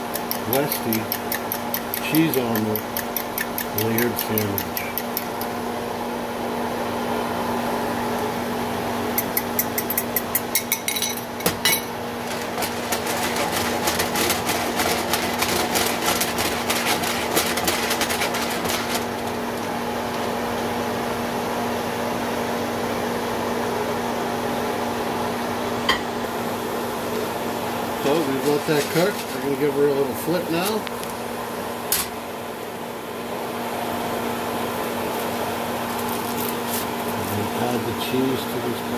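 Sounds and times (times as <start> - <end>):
fork scraping bowl clicks: 0.1 - 5.5, 9.2 - 10.8.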